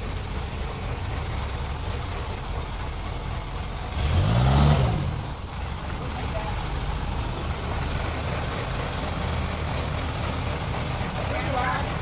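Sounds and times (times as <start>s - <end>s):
diesel engine running and revving: 0.0s - 12.0s.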